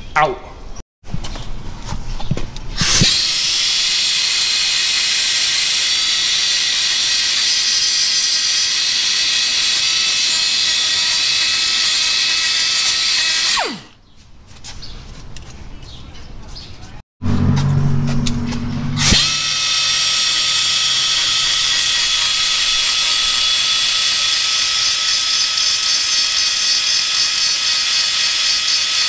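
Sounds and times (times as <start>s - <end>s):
pneumatic die grinder hissing: 2.8s - 13.9s, 19.0s - 29.0s
grinder spinning down whine: 2.8s - 14.0s, 17.2s - 29.0s.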